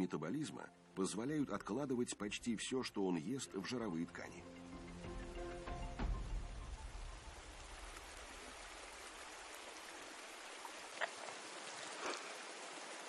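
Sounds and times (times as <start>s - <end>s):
flowing river water: 3.9s - 13.0s.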